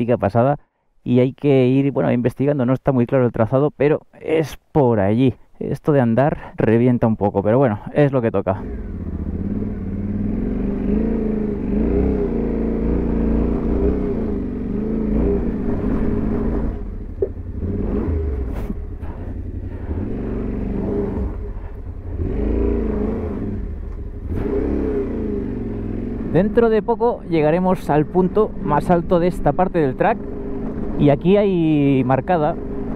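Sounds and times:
motorcycle engine revving: 8.5s - 32.9s.

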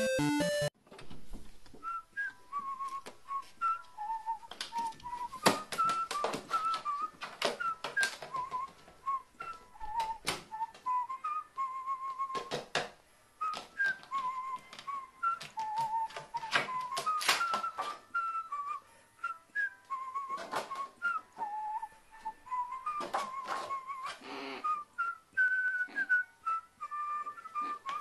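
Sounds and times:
whistled melody: 0.0s - 0.7s, 1.8s - 12.7s, 13.4s - 28.0s.

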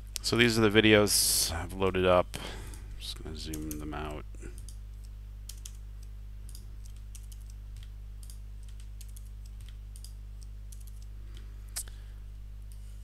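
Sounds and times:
low electrical hum: 0.0s - 13.0s
computer keyboard keystrokes: 4.6s - 11.4s.

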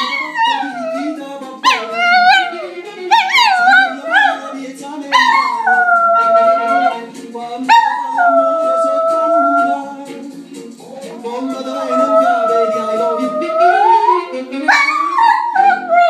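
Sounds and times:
dog howling: 0.0s - 7.0s, 7.7s - 9.8s, 11.2s - 16.0s
music playing: 0.0s - 16.0s.

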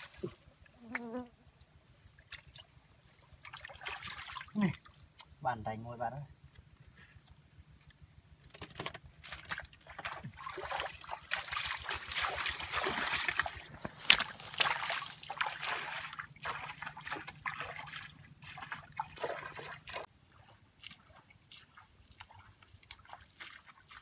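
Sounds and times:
feet splashing in muddy water: 2.2s - 5.2s, 9.2s - 24.0s
sharp splash: 3.4s - 4.9s, 9.3s - 20.1s.

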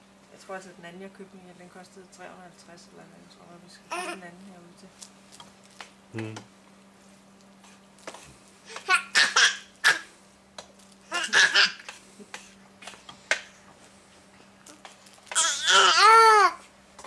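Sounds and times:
baby calling loudly: 8.7s - 10.1s, 11.1s - 11.8s, 15.3s - 16.6s
baby squealing: 8.9s - 10.0s, 11.1s - 11.8s, 15.4s - 16.6s.

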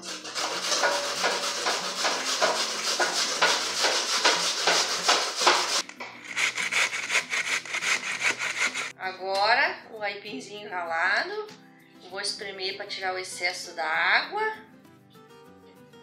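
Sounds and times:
root grated on metal grater: 0.0s - 8.9s.

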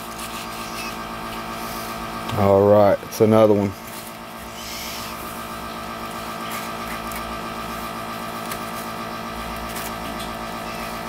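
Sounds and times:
small machine humming and rattling: 0.0s - 11.0s.

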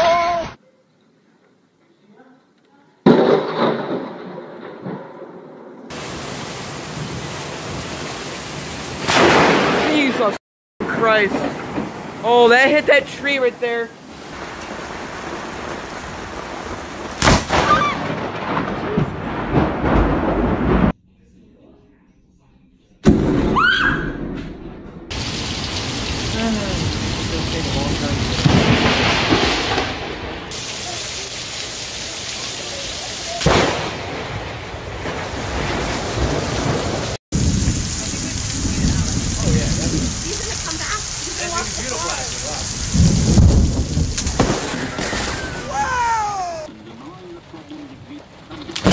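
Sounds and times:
sharp thunder crack: 3.0s - 12.6s, 14.2s - 21.0s, 23.0s - 31.0s, 33.4s - 45.7s
heavy rain hissing: 5.9s - 17.2s, 25.1s - 48.9s
low rumbling thunder: 8.9s - 10.0s, 10.8s - 12.3s, 14.3s - 21.0s, 24.2s - 30.9s, 33.4s - 45.8s
wind buffeting microphone: 37.3s - 44.6s.

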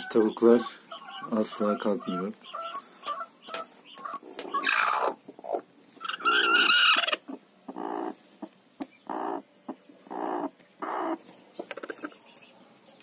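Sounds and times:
hen squawking: 0.0s - 8.1s
hen clucking: 0.0s - 12.3s.

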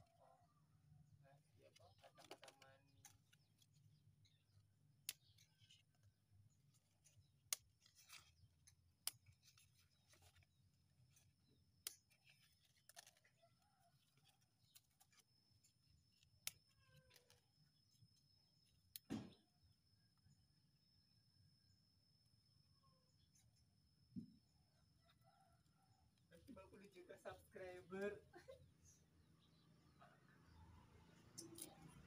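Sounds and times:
leaf stalks snapping: 11.8s - 13.2s.

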